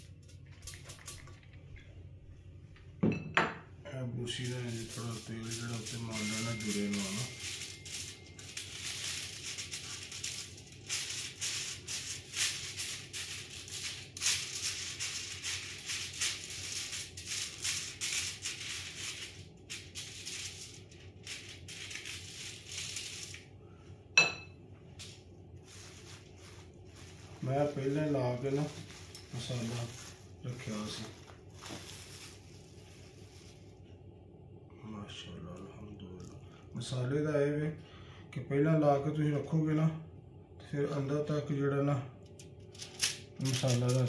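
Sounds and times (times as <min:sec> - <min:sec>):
brush rustling over foil: 0:04.2 - 0:23.9, 0:24.8 - 0:34.0, 0:42.7 - 0:44.0.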